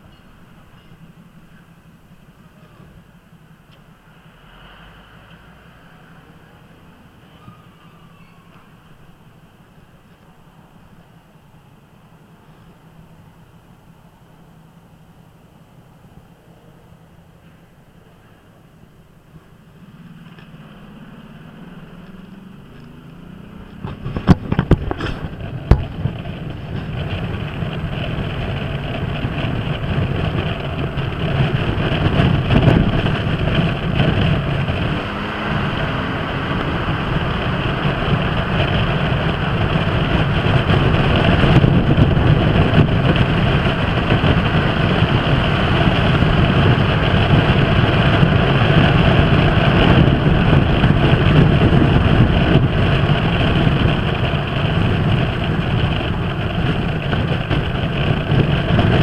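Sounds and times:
scooter engine running: 0:19.3 - 0:59.0
wind noise: 0:19.7 - 0:59.0.

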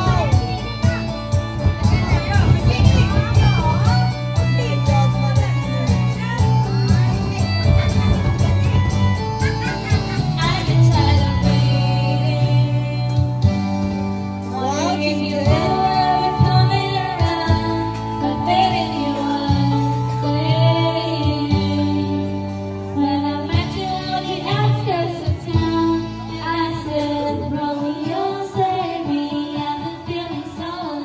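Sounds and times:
karaoke backing track: 0:00.0 - 0:31.0
woman singing into a microphone: 0:10.2 - 0:31.0.

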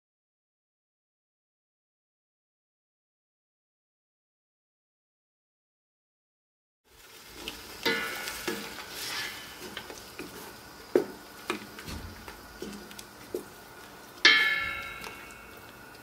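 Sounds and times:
wooden spoon stirring thick mixture: 0:07.1 - 0:16.0
ringing metallic clang: 0:07.9 - 0:08.3, 0:14.2 - 0:15.6.

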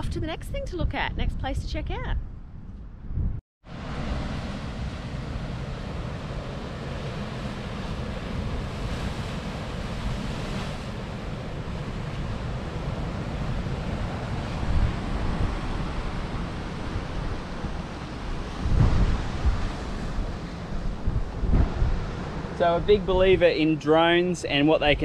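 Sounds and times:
wind rumbling on microphone: 0:00.0 - 0:25.0
waves breaking on rocks: 0:03.8 - 0:22.8.

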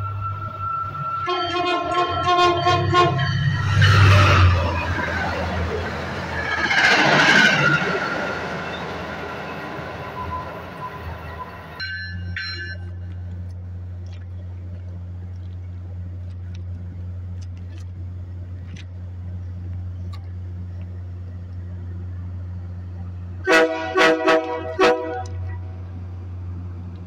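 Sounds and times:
train horn blasts: 0:00.0 - 0:04.8, 0:23.4 - 0:25.8
train approaching with low drone: 0:00.0 - 0:27.0.

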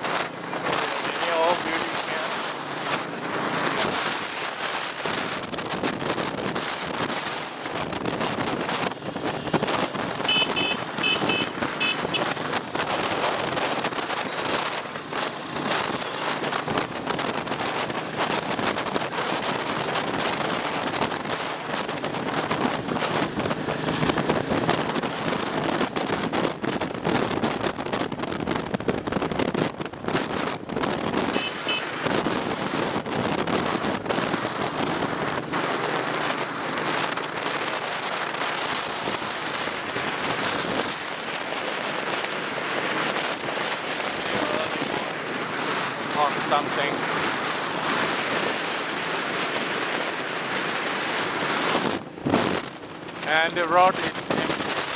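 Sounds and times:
wind buffeting microphone: 0:00.0 - 0:54.9
short high beeps: 0:10.3 - 0:12.3.

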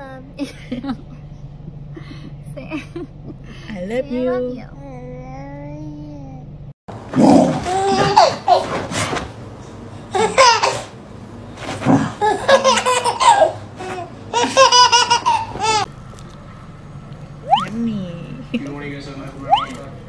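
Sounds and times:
toddler laughing: 0:07.6 - 0:08.8, 0:10.1 - 0:10.9, 0:12.2 - 0:15.9.

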